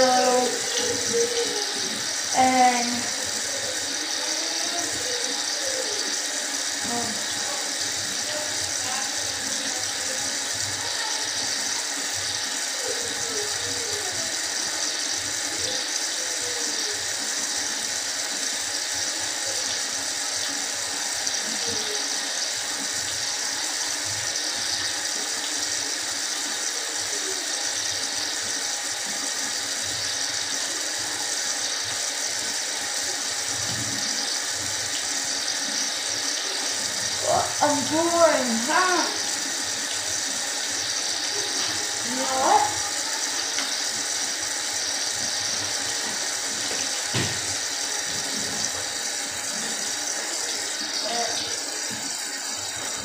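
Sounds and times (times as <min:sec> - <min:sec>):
water running from tap: 0:00.0 - 0:53.0.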